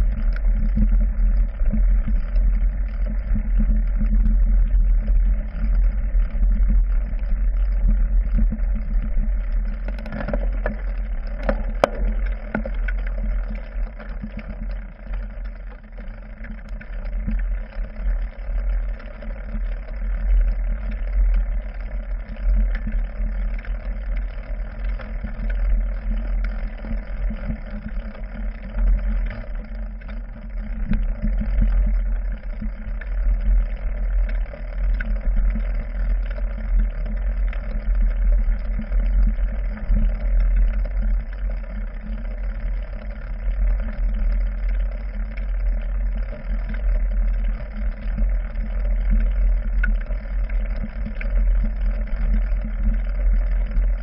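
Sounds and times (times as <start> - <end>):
bike handlebar deep rumble: 0.0 - 54.0
bike knocks and rattles: 9.9 - 13.0.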